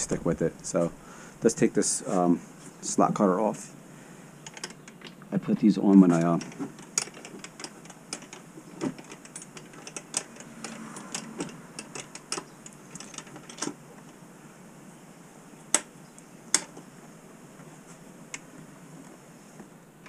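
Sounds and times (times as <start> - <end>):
metal clicks and taps: 5.9 - 13.8.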